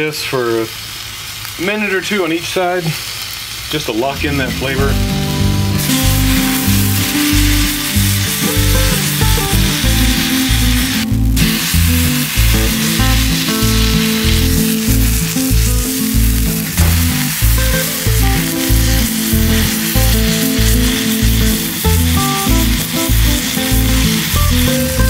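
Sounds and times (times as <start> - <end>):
meat sizzling on a griddle: 0.0 - 25.0
background music with steady beat: 4.2 - 25.0.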